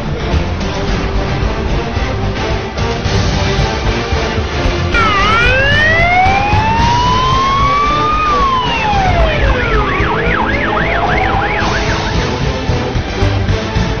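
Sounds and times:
police siren wail: 4.9 - 13.2
police siren yelp: 5.0 - 12.9.

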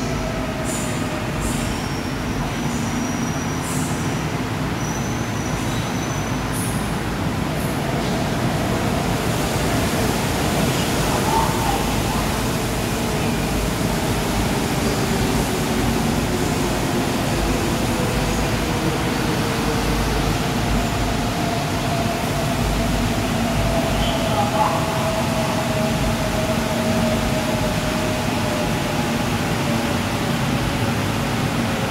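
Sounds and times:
train air conditioning whir: 0.0 - 31.9.

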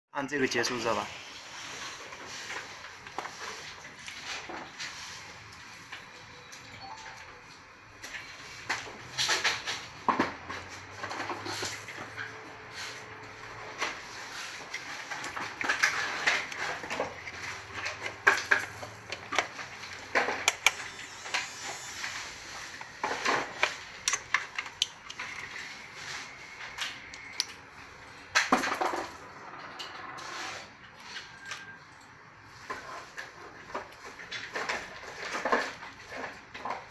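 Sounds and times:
plastic and metal clatter: 13.6 - 20.6, 32.6 - 36.9.

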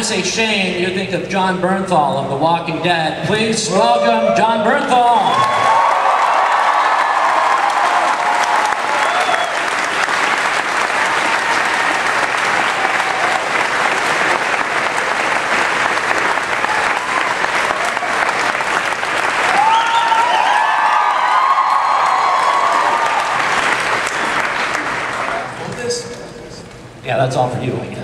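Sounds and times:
audience clapping and cheering: 5.1 - 25.9
shrill screams and whoops: 5.2 - 9.7, 19.5 - 23.5.

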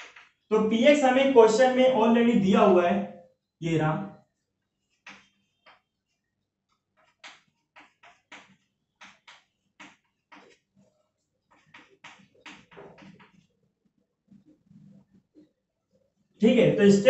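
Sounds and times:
chalk tapping and scraping on chalkboard: 5.0 - 5.9, 7.0 - 10.8, 11.5 - 13.4.

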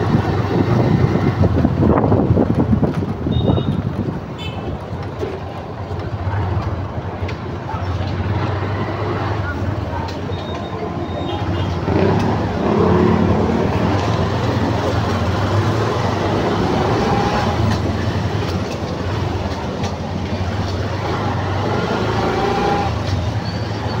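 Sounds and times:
vehicle engine and road noise: 0.0 - 24.0.

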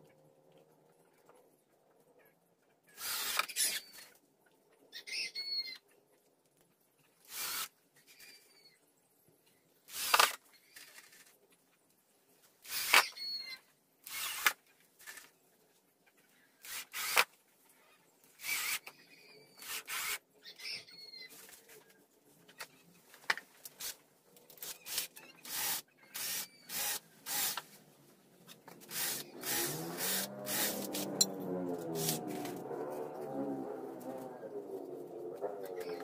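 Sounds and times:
cordless drill driving screws: 3.0 - 4.0, 7.3 - 7.7, 9.9 - 10.4, 12.6 - 13.4, 14.1 - 14.6, 16.6 - 17.3, 18.4 - 18.9, 19.6 - 20.2, 24.6 - 27.6, 28.8 - 31.3.

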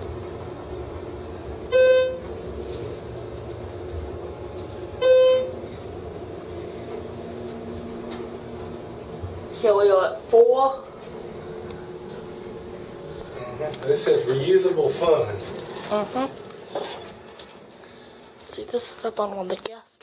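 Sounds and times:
elevator humming: 0.0 - 19.4
elevator chime beep: 1.7 - 2.3, 5.0 - 5.6.

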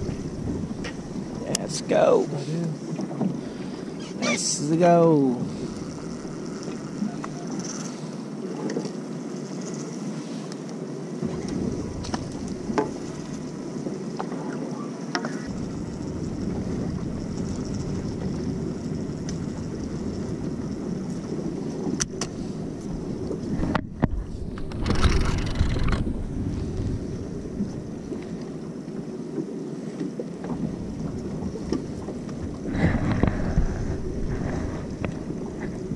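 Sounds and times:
wind buffeting microphone: 0.0 - 7.6, 11.1 - 14.6, 15.3 - 29.1, 30.4 - 35.9
boat engine and water rush: 0.0 - 35.9
faint sharp ticks: 8.6 - 10.8.

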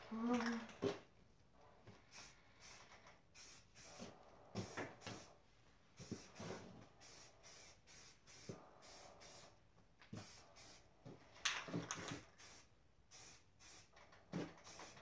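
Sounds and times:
spray paint can hissing: 2.1 - 5.3, 6.0 - 9.6, 10.2 - 10.8, 11.9 - 15.0.

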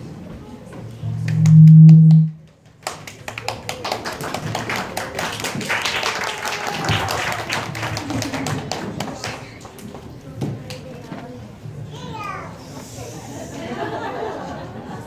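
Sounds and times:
loud low hum: 0.9 - 2.4
audience clapping: 2.5 - 10.8.

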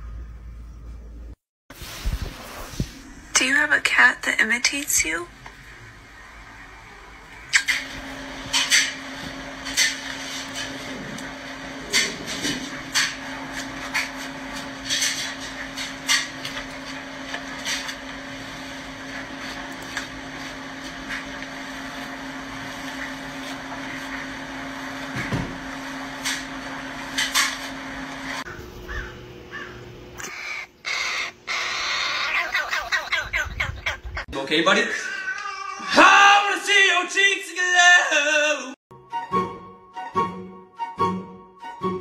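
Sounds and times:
steady low hum: 0.0 - 32.2
young bird harsh begging calls: 28.5 - 34.2.

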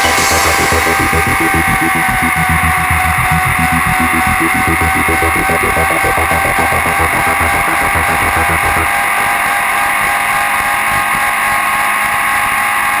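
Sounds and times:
low rhythmic pulsing: 0.0 - 10.2.

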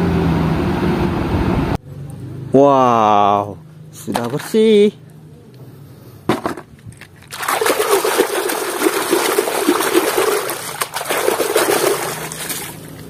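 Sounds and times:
hand splashing soapy water: 7.3 - 13.0.

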